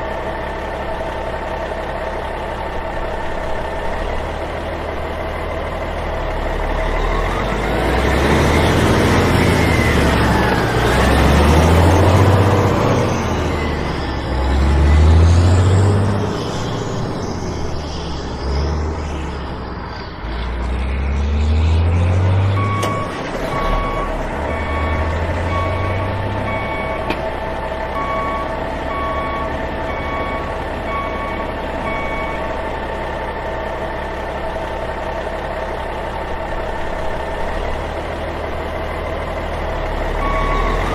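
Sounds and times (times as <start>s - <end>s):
heavy truck engine revving: 0.0s - 40.9s
reversing alarm beeping: 22.4s - 27.2s, 27.9s - 32.6s, 40.0s - 40.9s.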